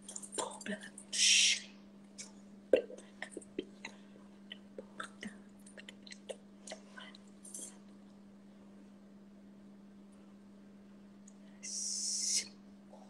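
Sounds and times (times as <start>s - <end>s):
steady low hum: 0.0s - 13.0s
mouth and lip noises: 2.2s - 7.8s.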